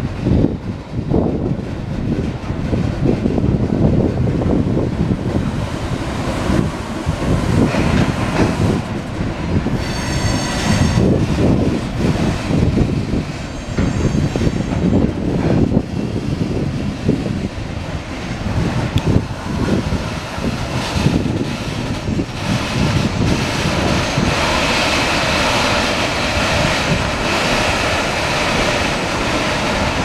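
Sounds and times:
train rumble: 0:00.0 - 0:30.0
train wheels clattering on rails: 0:00.0 - 0:30.0
high metallic squeal: 0:09.7 - 0:11.3, 0:13.4 - 0:15.0.

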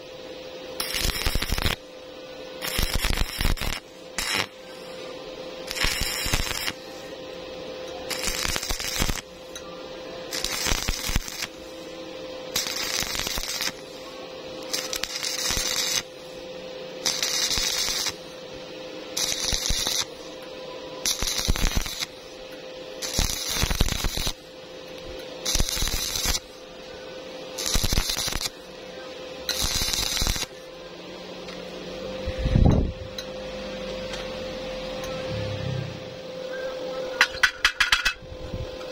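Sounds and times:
welding arc crackling and hissing: 0:00.0 - 0:30.8
steady hum: 0:00.0 - 0:38.9.

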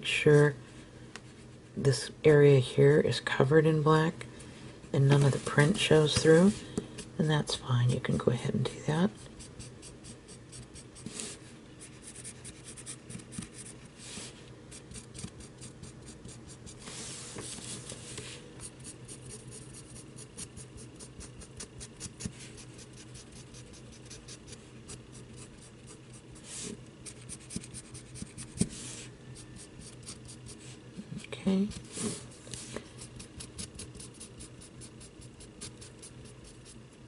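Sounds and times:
marker scratching on cardboard: 0:11.8 - 0:13.9, 0:14.7 - 0:17.0, 0:18.6 - 0:30.8, 0:33.0 - 0:36.9.

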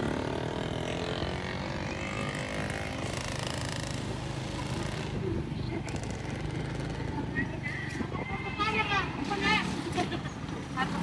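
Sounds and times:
road noise: 0:00.0 - 0:11.0.

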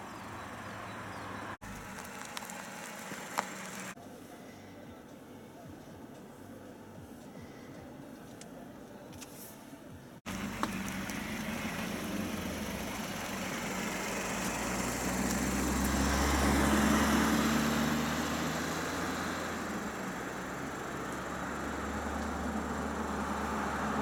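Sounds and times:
car engine running: 0:00.0 - 0:04.0, 0:10.3 - 0:24.0
tyres on gravel: 0:00.0 - 0:04.0, 0:10.3 - 0:24.0.

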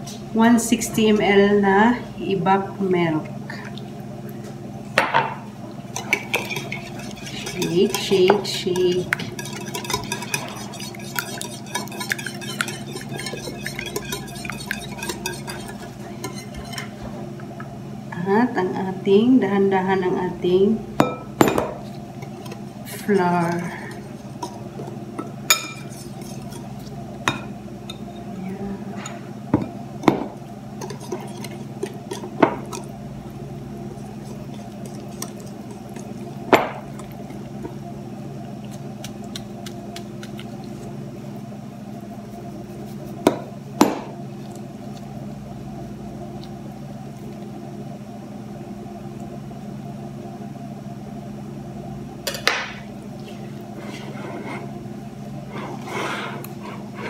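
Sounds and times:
whisk clinking glass bowl: 0:06.0 - 0:16.9.

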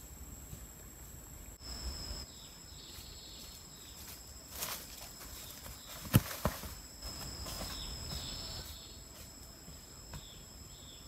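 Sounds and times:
high insect buzzing: 0:01.6 - 0:02.4, 0:05.8 - 0:09.5
footsteps in dry leaves: 0:02.9 - 0:09.4
bamboo thudding on dirt: 0:05.6 - 0:08.4.

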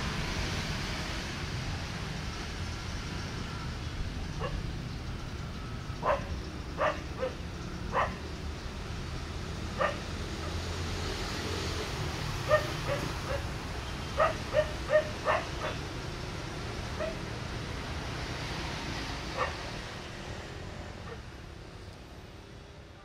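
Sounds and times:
train rumbling: 0:00.0 - 0:22.8
dog barking: 0:04.4 - 0:04.6, 0:06.0 - 0:08.2, 0:09.8 - 0:10.6, 0:12.4 - 0:13.5, 0:14.2 - 0:15.8, 0:17.0 - 0:17.3, 0:19.3 - 0:19.7, 0:21.0 - 0:21.2.

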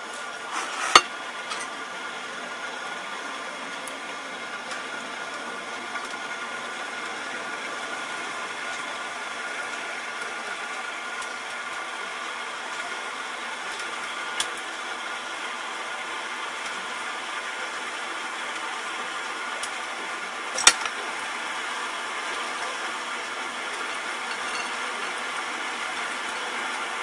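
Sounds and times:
background hum and hiss: 0:00.0 - 0:27.0.

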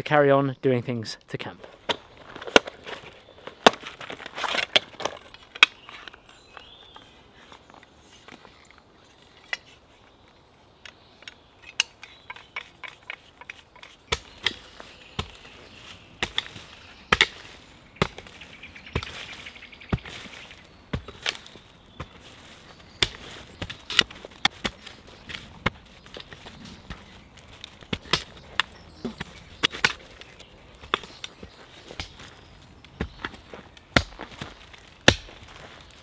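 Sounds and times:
pick chopping into soil: 0:19.9 - 0:32.3.

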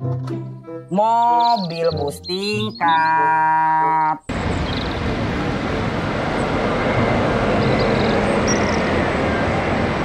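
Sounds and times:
traffic rumble and road noise: 0:02.8 - 0:10.0
bus driving past: 0:04.3 - 0:10.0.

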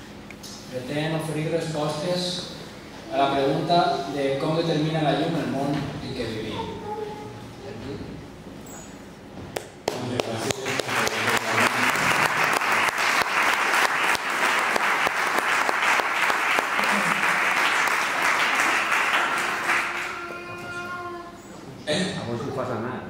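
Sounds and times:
audience applauding: 0:09.9 - 0:20.7.

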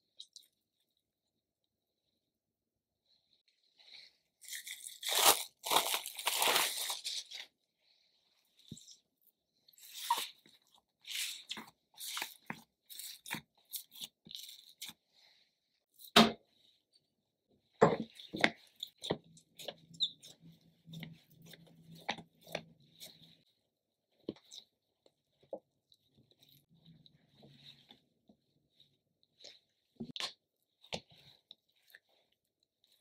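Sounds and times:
dough tearing and crackling: 0:04.4 - 0:07.5.

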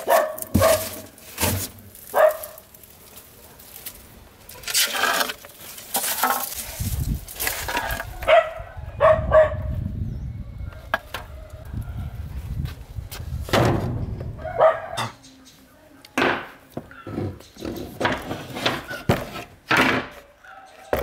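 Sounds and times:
dog barking: 0:00.0 - 0:01.0, 0:02.1 - 0:02.6, 0:08.2 - 0:09.7, 0:14.4 - 0:15.1, 0:20.4 - 0:20.9
leafy plants rustling: 0:00.0 - 0:08.4.

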